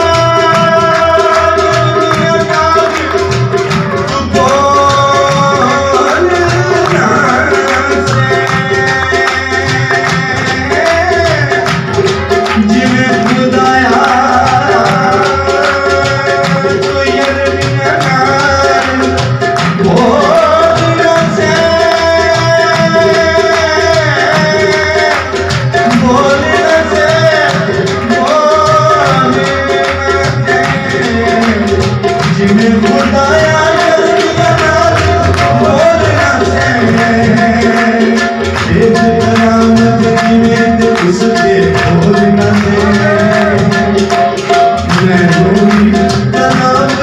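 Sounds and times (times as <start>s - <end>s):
harmonium drone: 0.0s - 47.0s
man singing: 0.0s - 47.0s
tabla beat: 0.0s - 47.0s.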